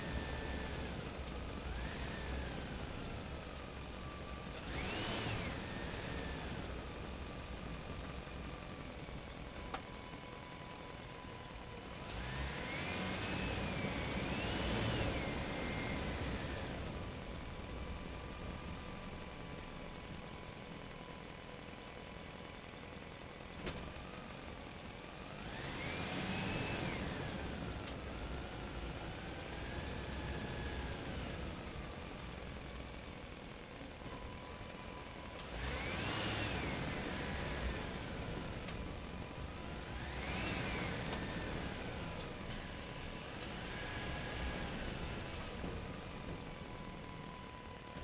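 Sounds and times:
toy crane motors whining: 0:04.5 - 0:06.8.

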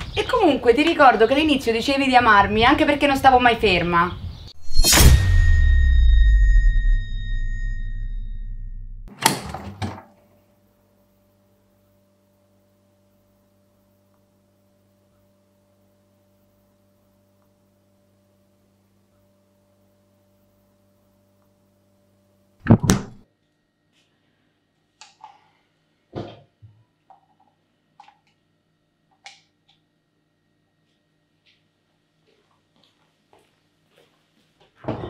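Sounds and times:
faint steady hum: 0:10.2 - 0:22.7.

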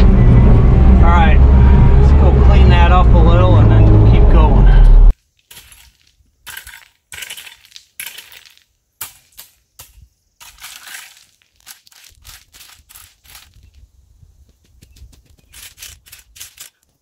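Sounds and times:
rake scraping through gravel: 0:05.2 - 0:13.8, 0:15.4 - 0:17.0.

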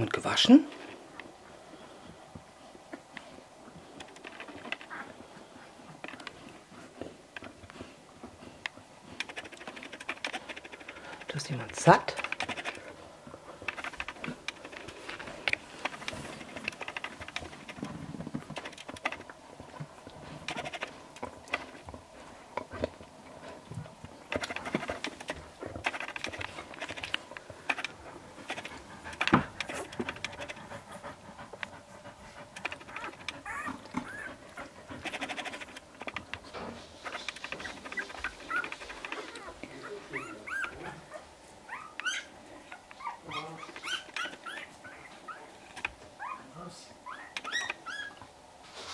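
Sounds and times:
soft clicks and rustles: 0:00.7 - 0:31.7
puppies squeaking: 0:32.8 - 0:34.8, 0:37.3 - 0:48.3.

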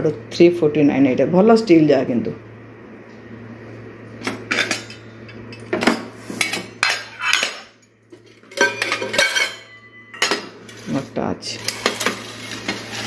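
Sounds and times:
steel utensils clattering: 0:04.5 - 0:05.7, 0:06.4 - 0:13.0.

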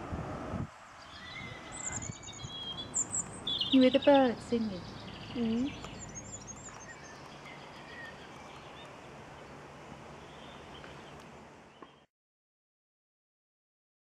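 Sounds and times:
steady background hiss: 0:00.0 - 0:12.1
bird chirps: 0:01.0 - 0:09.6, 0:10.2 - 0:12.1.

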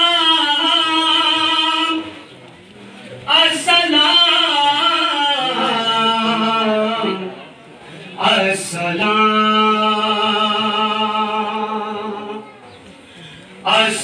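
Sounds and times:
man chanting unaccompanied: 0:00.0 - 0:02.2, 0:03.2 - 0:07.5, 0:08.2 - 0:12.5, 0:13.6 - 0:14.0.

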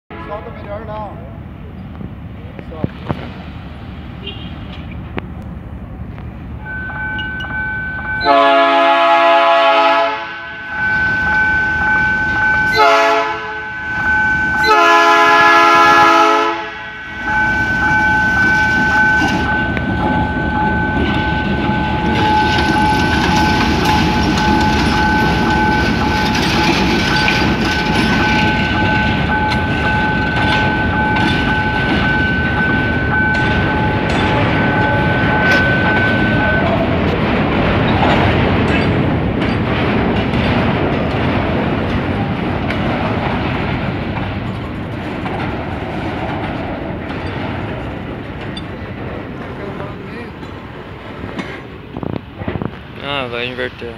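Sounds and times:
steady high-pitched tone: 0:06.6 - 0:08.5, 0:10.2 - 0:15.4, 0:16.5 - 0:37.1
locomotive horn: 0:08.2 - 0:11.8, 0:12.5 - 0:17.4
wheels clattering on rails: 0:10.6 - 0:53.9.

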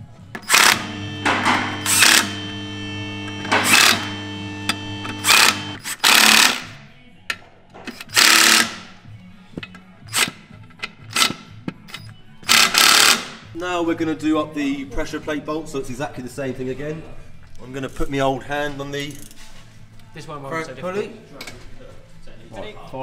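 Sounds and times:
impact driver running in bursts: 0:00.4 - 0:06.8, 0:08.0 - 0:08.9, 0:12.5 - 0:13.4.

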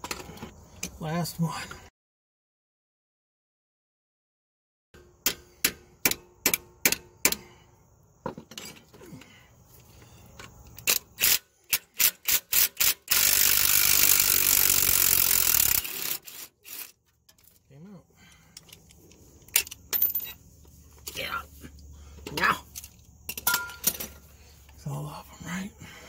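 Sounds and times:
power tool running: 0:12.0 - 0:16.9.

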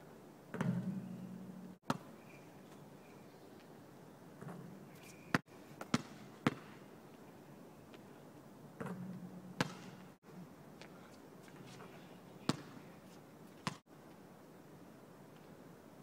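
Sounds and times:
basketball bouncing: 0:00.5 - 0:02.1, 0:05.8 - 0:06.8, 0:08.8 - 0:10.2, 0:12.5 - 0:12.8
basketball hitting hard surface: 0:00.6 - 0:02.0, 0:08.8 - 0:10.2.

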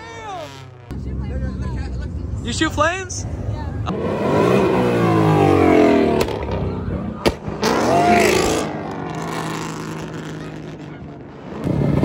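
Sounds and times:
car engine revving and idling: 0:00.0 - 0:12.0.

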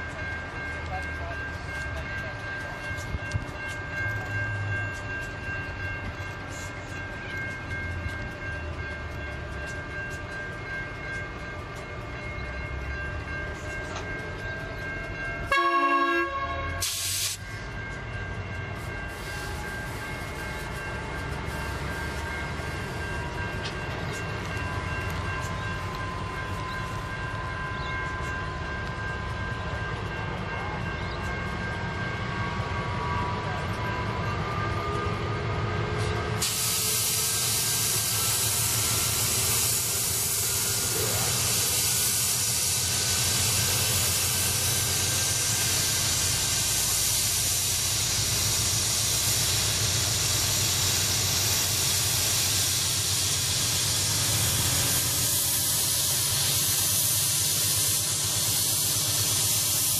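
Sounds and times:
locomotive engine drone: 0:00.0 - 0:59.9
loud steady hiss: 0:36.4 - 0:59.9.

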